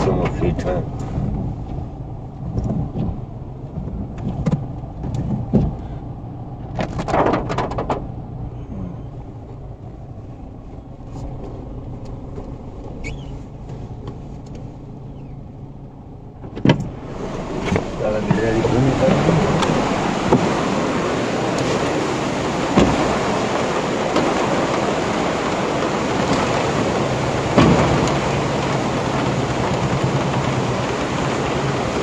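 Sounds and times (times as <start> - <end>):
car engine hum: 0.0 - 32.0
rain on car body: 0.0 - 32.0
rush of noise: 16.4 - 32.0.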